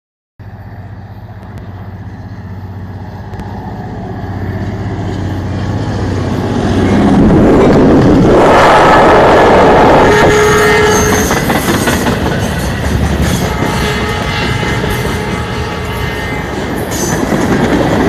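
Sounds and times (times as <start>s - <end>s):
diesel locomotive engine: 0.4s - 18.0s
train wheels rumbling on rails: 0.4s - 18.0s.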